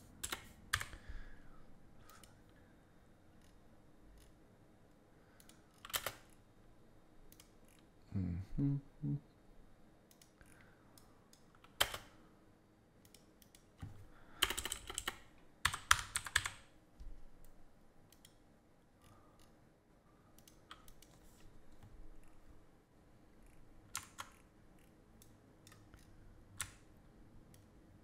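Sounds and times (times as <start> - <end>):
computer keyboard typing: 0.2 - 1.0, 5.4 - 6.3, 11.6 - 12.1, 14.4 - 16.7, 23.9 - 24.4.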